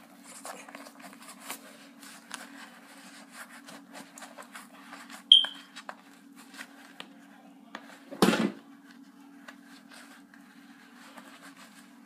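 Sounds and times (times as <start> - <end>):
high-pitched sneaker squeak: 5.3 - 5.7.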